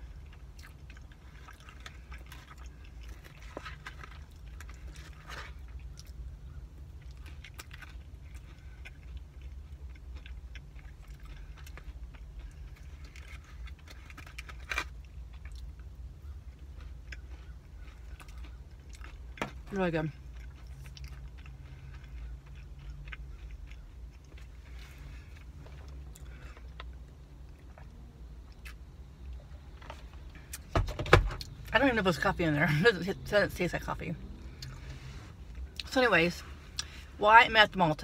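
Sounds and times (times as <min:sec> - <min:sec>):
steady low hum: 0:00.0 - 0:38.0
chewing mouth sounds: 0:20.2 - 0:27.0.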